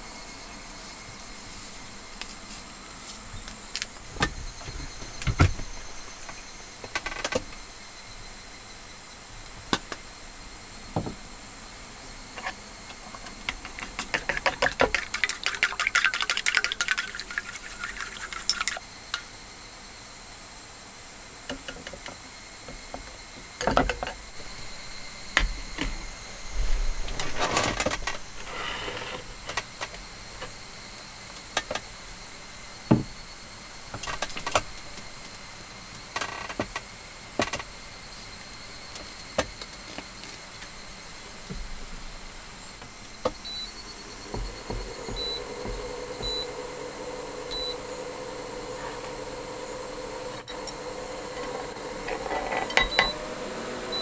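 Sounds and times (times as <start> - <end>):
chopsticks beating eggs in metal cup: 12.9 - 18.8.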